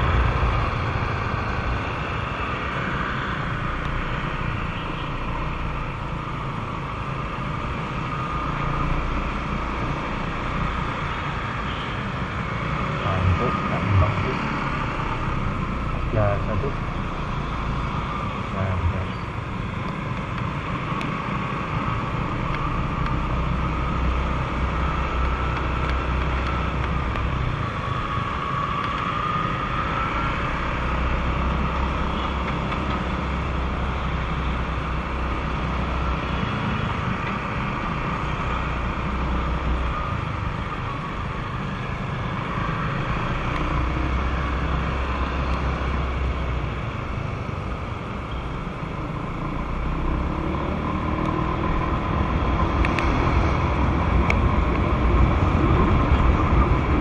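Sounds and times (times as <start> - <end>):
wind rushing over microphone: 51.6 - 57.0.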